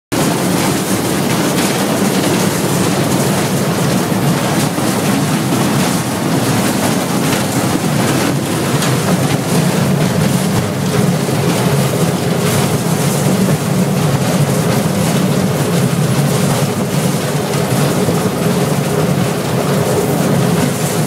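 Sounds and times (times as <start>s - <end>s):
diesel engine running under load: 0.1s - 21.0s
track rumble: 0.1s - 21.0s.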